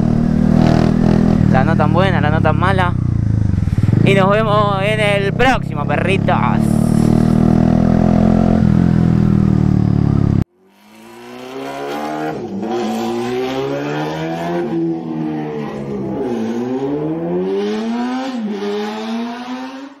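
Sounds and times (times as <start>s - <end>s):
vehicle accelerating through gears: 0.0s - 1.6s, 2.2s - 20.0s
motorcycle engine running: 0.0s - 13.6s.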